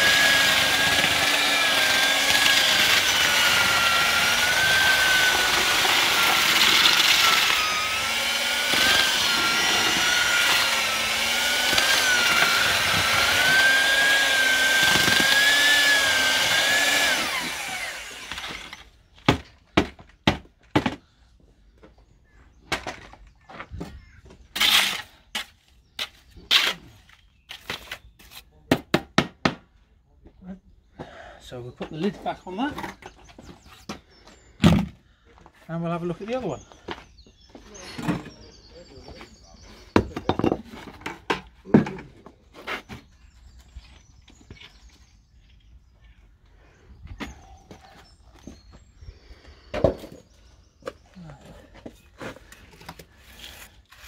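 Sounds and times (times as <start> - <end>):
scraper scraping dry mortar: 24.6 - 28.6, 52.0 - 54.0.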